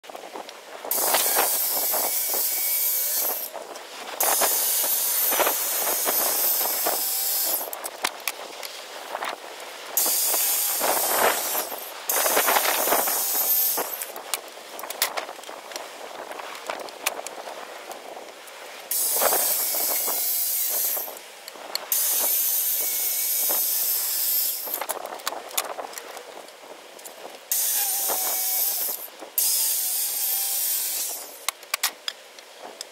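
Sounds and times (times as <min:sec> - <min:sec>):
circular saw cutting wood: 0:00.9 - 0:03.6, 0:04.2 - 0:07.8, 0:10.0 - 0:14.1, 0:18.9 - 0:21.2, 0:21.9 - 0:24.9, 0:27.5 - 0:31.5.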